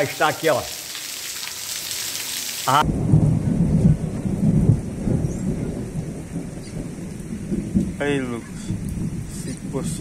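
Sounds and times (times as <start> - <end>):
heavy rain hissing: 0.0 - 2.9
low uneven storm rumble: 2.8 - 10.0.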